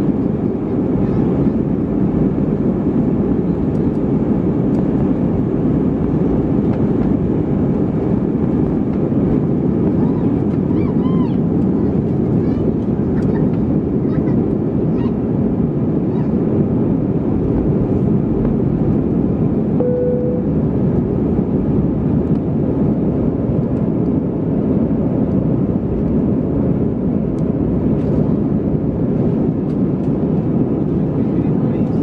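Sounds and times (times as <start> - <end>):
aircraft engine rumble: 0.0 - 32.0
brief steady tone: 19.8 - 20.8.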